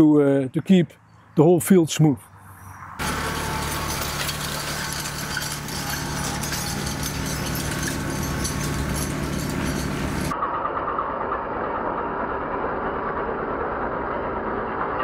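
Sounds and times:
chains rattling and scraping over turf: 3.0s - 10.4s
tractor diesel engine running: 3.0s - 10.4s.

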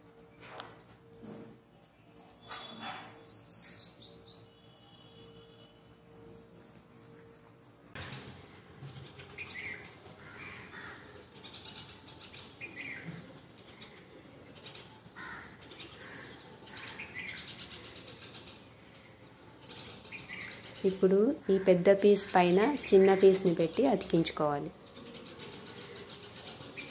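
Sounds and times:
faint high whine: 0.0s - 9.0s
crows cawing: 10.2s - 11.1s, 15.2s - 17.2s.

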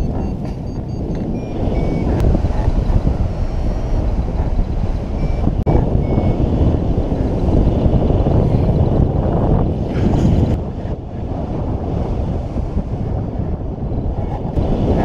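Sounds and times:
faint high beeps: 0.0s - 2.3s, 5.2s - 6.5s
wind rushing over microphone: 0.0s - 15.0s.

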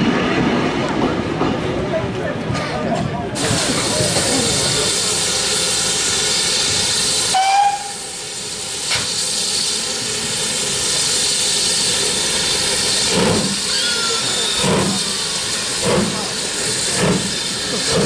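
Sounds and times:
locomotive whistle toot: 7.3s - 8.2s, 13.7s - 15.1s.

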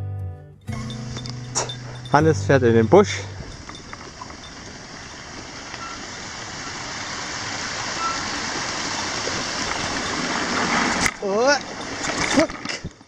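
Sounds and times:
bicycle rolling over gravel: 1.3s - 13.0s
stream rushing over stones: 2.9s - 13.0s.

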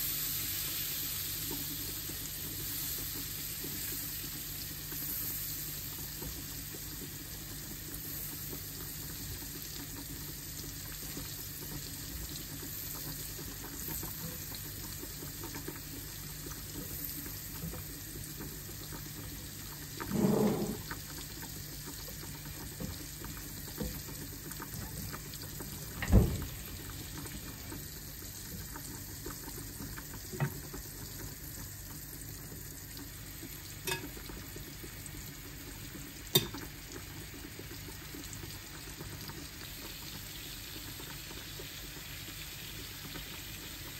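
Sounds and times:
butter sizzling in a pan: 0.0s - 43.9s
utensils knocking against pan: 33.9s - 34.1s.

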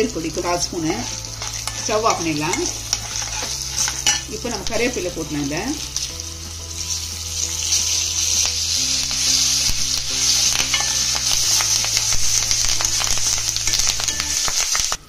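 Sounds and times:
hot oil sizzling: 0.0s - 15.0s
spoon scraping and clicking on pan: 1.0s - 4.3s, 10.5s - 12.0s.

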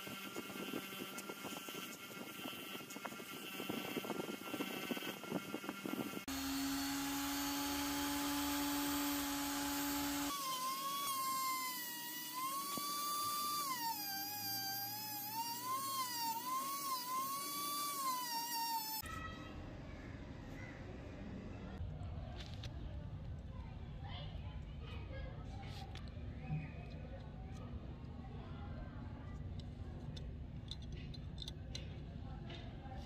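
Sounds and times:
rotary tool whining: 0.0s - 19.0s.

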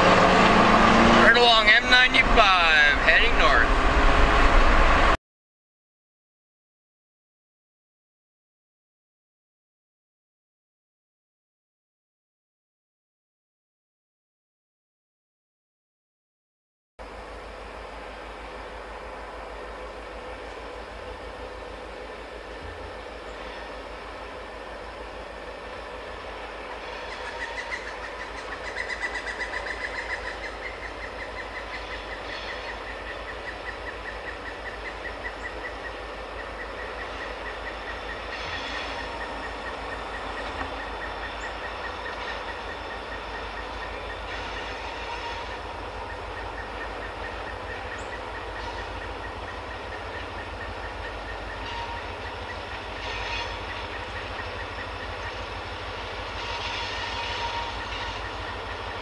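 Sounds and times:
diesel locomotive engine running: 0.0s - 5.2s, 17.0s - 59.0s
thin high whine: 36.6s - 45.7s.

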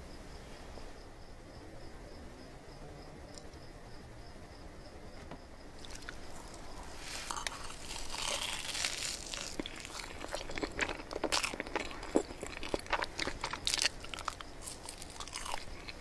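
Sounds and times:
soft chewing with mouth clicks: 5.8s - 16.0s.

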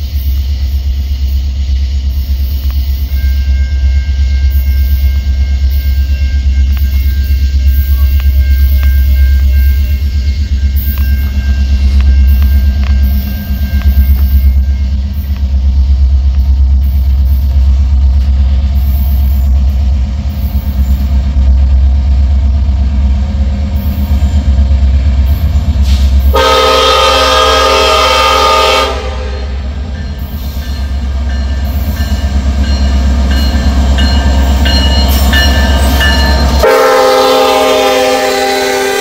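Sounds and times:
diesel train rumbling: 0.0s - 39.0s
train air horn chord: 25.9s - 29.7s, 36.6s - 39.0s.

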